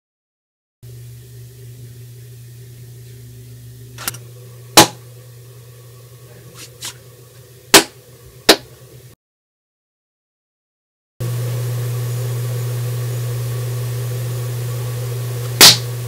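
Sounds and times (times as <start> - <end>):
steady low hum: 0.8 - 9.2.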